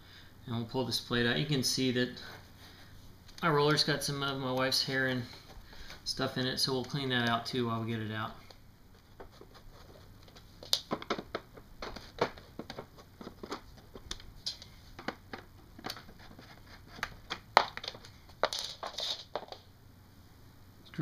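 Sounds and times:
hands handling plastic base: 0:03.2 - 0:19.6.

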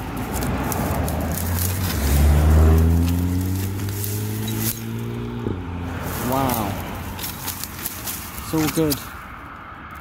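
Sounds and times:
dry grass crackling: 0:00.0 - 0:10.0
passing vehicle engine drone: 0:00.0 - 0:10.0.

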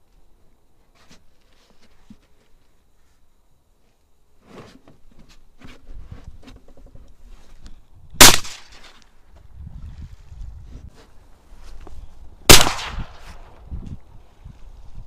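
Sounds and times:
loud shotgun shot: 0:08.2 - 0:08.8, 0:12.5 - 0:13.4.

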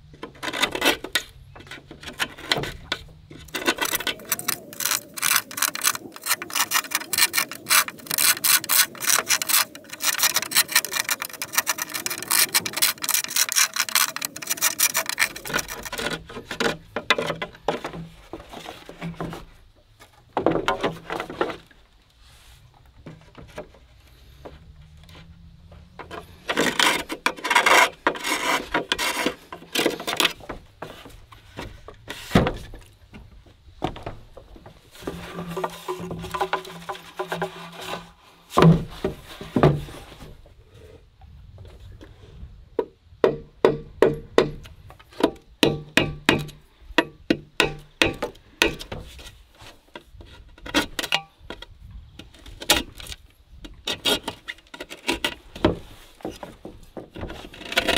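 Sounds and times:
knife cutting bamboo: 0:02.2 - 0:16.7
sharp knock of bamboo post: 0:43.2 - 0:49.0.

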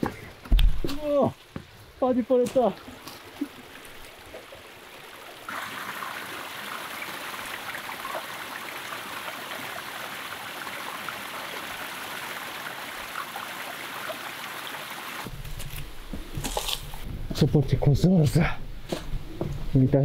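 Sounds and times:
mountain stream rushing: 0:00.0 - 0:15.3.

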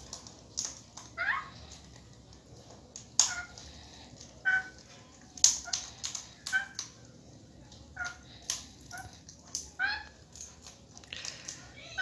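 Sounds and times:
beak cracking seeds: 0:00.0 - 0:12.0
parrot squeaky calls: 0:01.2 - 0:01.5, 0:03.2 - 0:03.6, 0:04.4 - 0:04.8.

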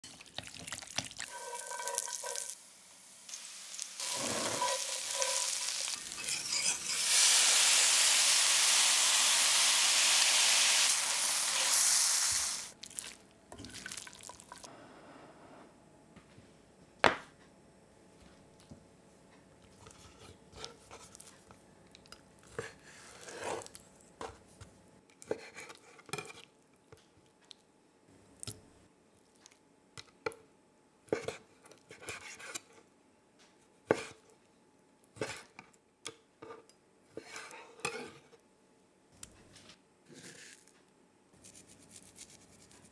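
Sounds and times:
food sizzling in hot oil: 0:01.0 - 0:12.8
knife on wooden chopping board: 0:06.2 - 0:07.0.

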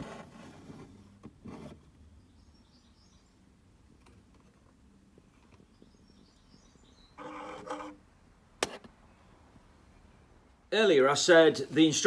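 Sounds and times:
faint bird chirps: 0:02.2 - 0:03.5, 0:05.3 - 0:07.9.

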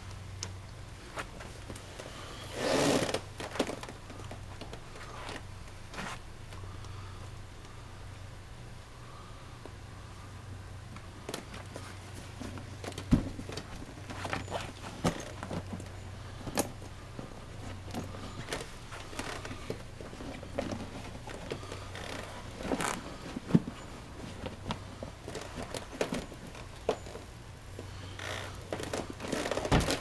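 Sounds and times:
metal buckles clinking: 0:12.4 - 0:27.3.

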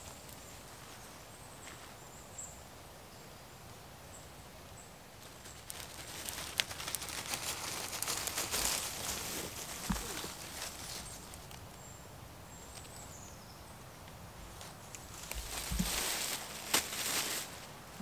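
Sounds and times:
rustling and crackles: 0:00.0 - 0:02.0, 0:05.1 - 0:11.9, 0:12.5 - 0:13.2, 0:14.0 - 0:18.0.

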